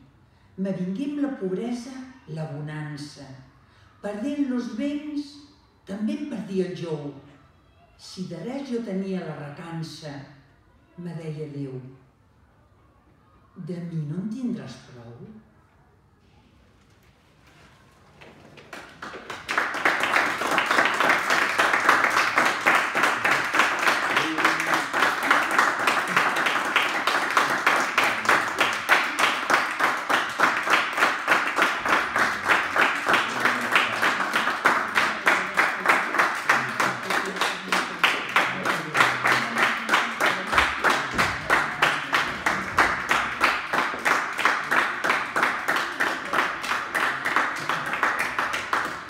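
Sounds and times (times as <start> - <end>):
audience applause: 18.0 - 49.0.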